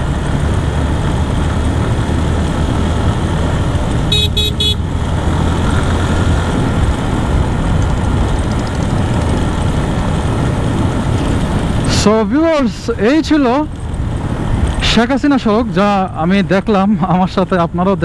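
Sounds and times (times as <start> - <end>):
wind noise on microphone: 0.0 - 12.0
motorcycle engine rumble: 0.0 - 17.1
vehicle horn beeps: 4.1 - 4.8.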